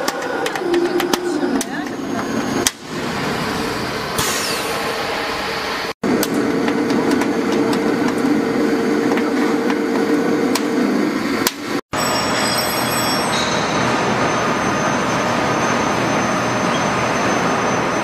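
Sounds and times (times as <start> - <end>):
machine humming with clicks: 0.0 - 2.0.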